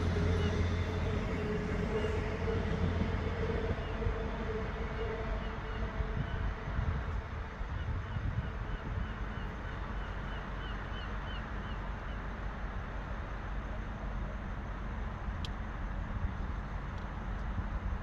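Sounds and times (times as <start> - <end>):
outdoor rumble: 0.0 - 6.2
wind buffeting microphone: 0.0 - 9.5.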